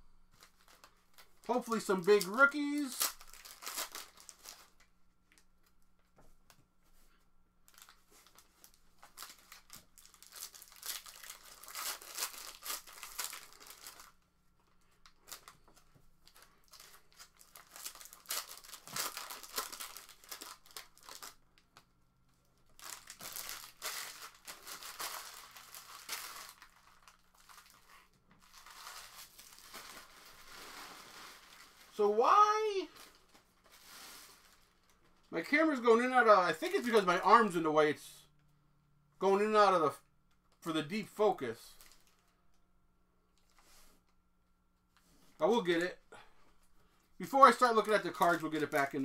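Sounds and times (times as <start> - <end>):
plastic wrapping tearing and crinkling: 0.4 - 5.4, 7.7 - 21.9, 22.6 - 35.0, 41.8 - 42.2.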